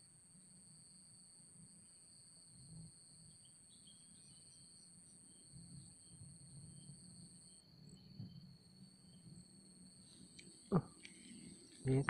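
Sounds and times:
faint insect song: 0.0 - 12.0.

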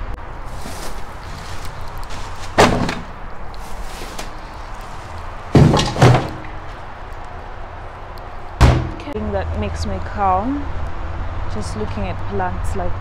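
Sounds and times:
plastic bin lid banging: 5.6 - 6.6, 8.6 - 9.0.

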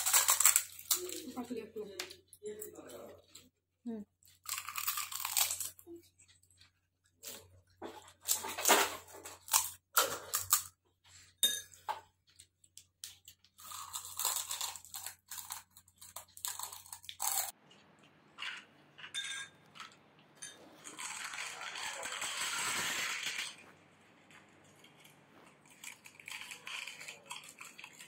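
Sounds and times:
crisp shells crunching: 0.0 - 1.3, 4.4 - 5.8, 13.0 - 17.5, 20.8 - 23.6, 24.7 - 28.0.

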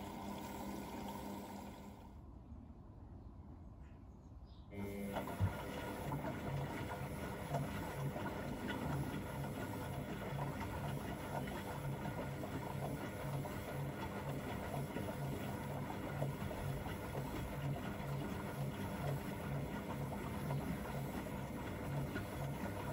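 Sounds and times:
washing machine running: 0.0 - 2.2, 4.7 - 22.9.

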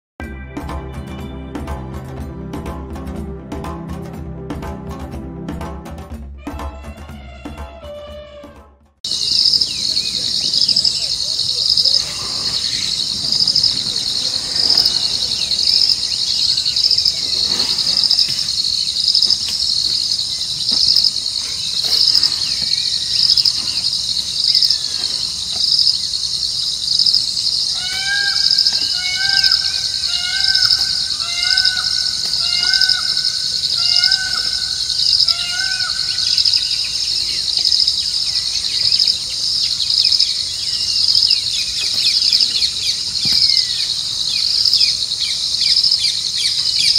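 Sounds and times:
bird repeating rising-falling note: 9.1 - 19.4, 25.7 - 39.1
crickets chirping: 9.1 - 46.9
faint bird chirps: 9.1 - 46.9.

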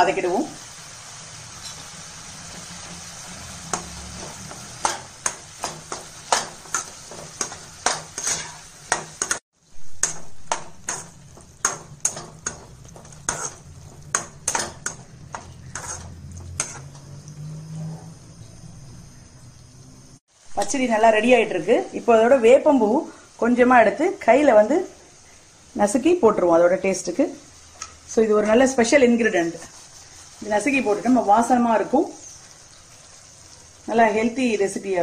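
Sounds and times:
faint sizzle: 0.0 - 35.0
metal spatula scraping a pan: 1.5 - 18.3.

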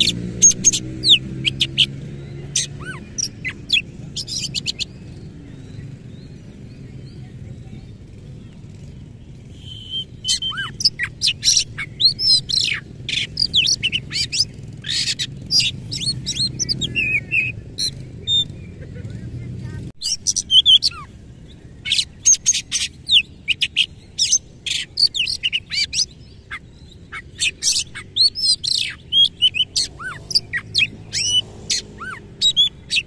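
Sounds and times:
bird singing: 0.0 - 33.0.

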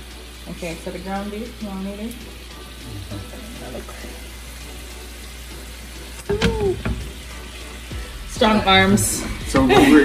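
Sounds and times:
vegetables sizzling in oil: 0.0 - 10.0.

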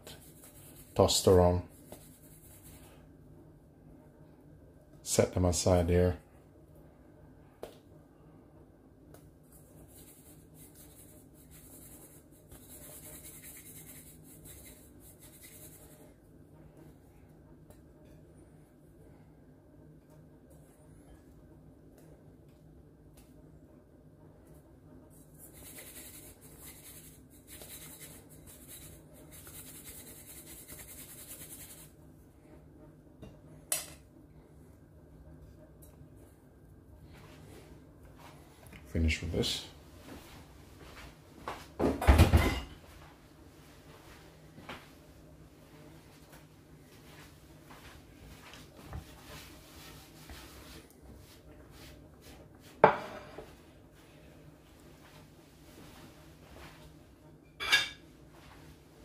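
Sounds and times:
crumb coating rustling in bowl: 0.1 - 3.0, 9.5 - 16.1, 25.1 - 31.9.

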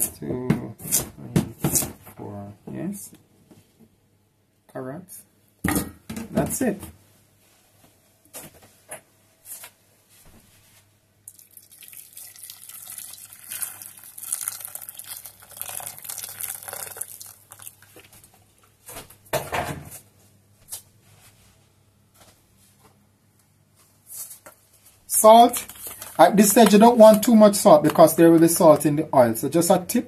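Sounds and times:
water pouring into pot: 11.3 - 18.1.

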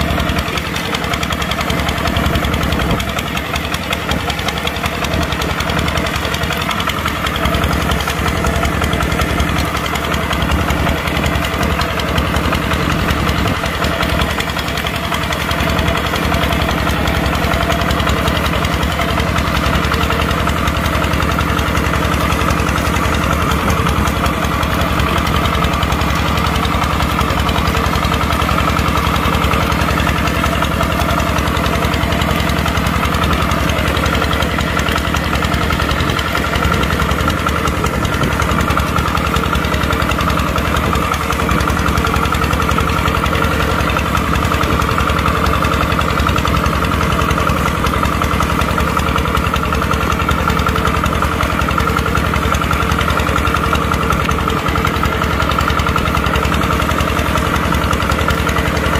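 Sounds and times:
tractor diesel engine running: 0.0 - 58.9.

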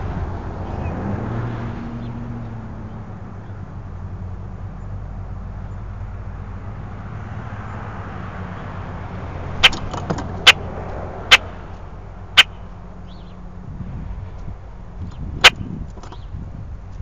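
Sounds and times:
sharp knocks: 9.6 - 10.6.

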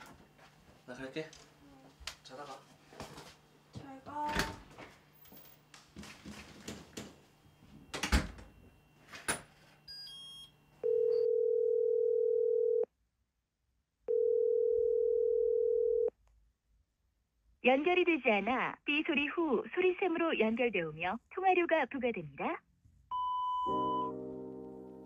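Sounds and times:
footsteps: 0.0 - 7.8
door shutting with a thud: 4.2 - 4.7, 7.9 - 8.5
phone ringback tone: 9.8 - 12.8, 14.1 - 16.1, 23.1 - 24.2
short phone beeps: 23.1 - 24.1.

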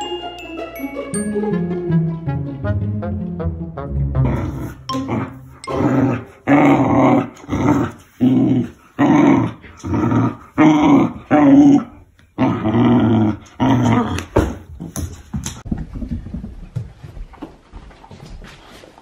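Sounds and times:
puppy play-growling: 4.2 - 14.9.

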